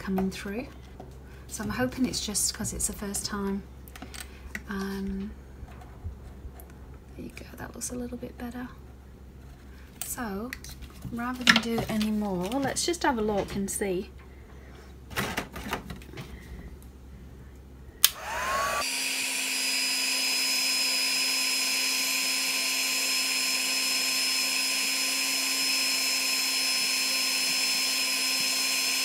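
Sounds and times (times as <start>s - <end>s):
heat tool whining and blowing: 18.0s - 29.0s.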